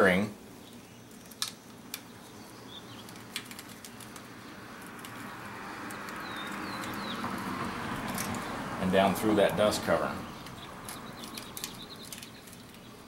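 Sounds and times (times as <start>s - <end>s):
bird chirps: 2.0s - 13.0s
cable rustle: 3.0s - 5.3s.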